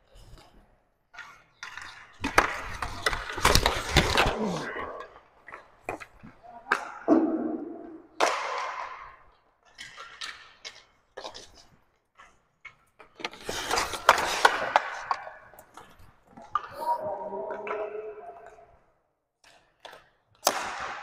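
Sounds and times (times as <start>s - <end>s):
skate wheels scraping: 0.0s - 7.1s, 7.9s - 17.0s
hockey sticks and puck clacking: 0.2s - 21.0s.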